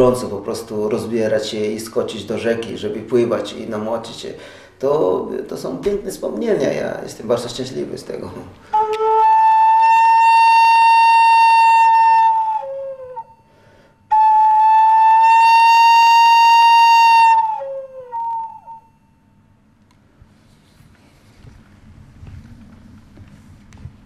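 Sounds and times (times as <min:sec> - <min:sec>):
cane flute playing: 0:08.6 - 0:19.0.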